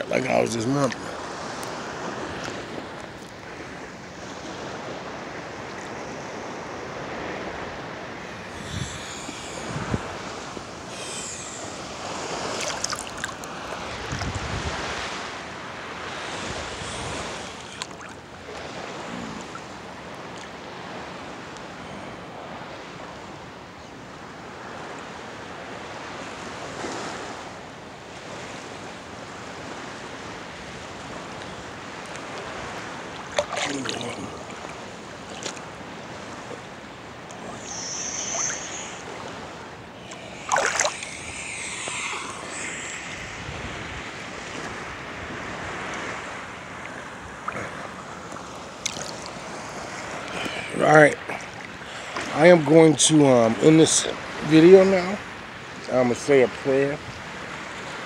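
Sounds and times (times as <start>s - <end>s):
water lapping and sloshing: 0.0s - 58.0s
wind noise: 6.0s - 19.6s, 37.4s - 46.5s.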